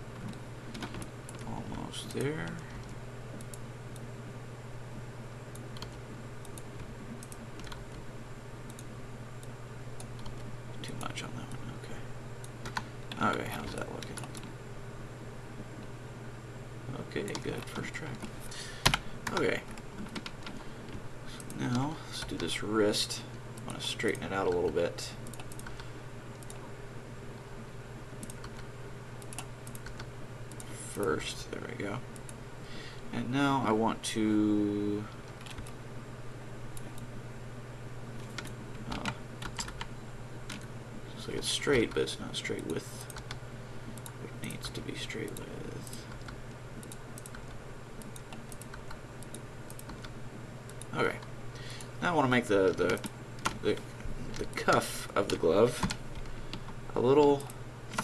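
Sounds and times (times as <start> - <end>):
steady low hum: 0.0 - 58.0
keyboard and mouse clicking: 5.5 - 8.0, 23.6 - 26.6, 28.2 - 30.7, 35.3 - 35.8, 38.2 - 39.9, 45.2 - 51.3, 52.6 - 56.8.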